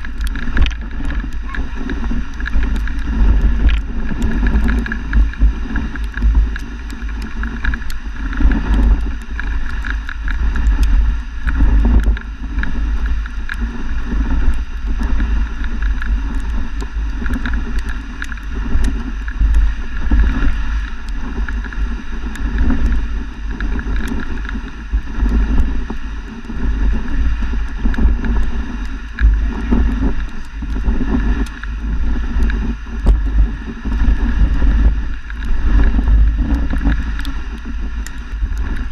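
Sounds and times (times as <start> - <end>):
sled knocks and rattles: 0.0 - 25.5
sled runners sliding on snow: 0.0 - 38.9.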